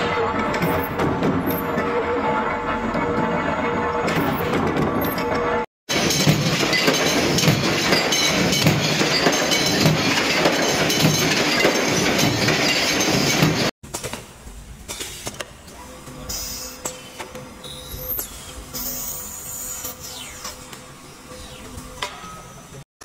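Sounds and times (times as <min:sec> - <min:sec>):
metal press clattering: 0:05.9 - 0:14.1.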